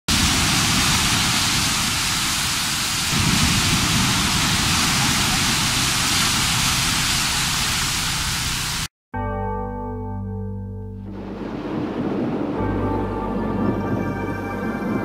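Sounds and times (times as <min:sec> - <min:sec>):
waves breaking on a beach: 0:00.1 - 0:08.8.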